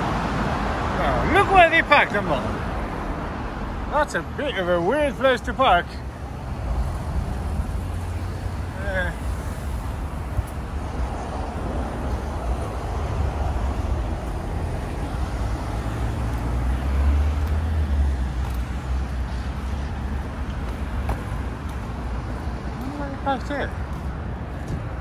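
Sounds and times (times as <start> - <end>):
road traffic rumble: 0.0 - 25.0.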